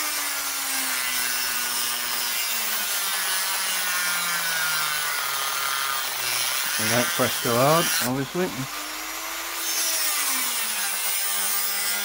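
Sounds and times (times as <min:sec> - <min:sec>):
rotary tool cutting steel: 0:00.0 - 0:12.0.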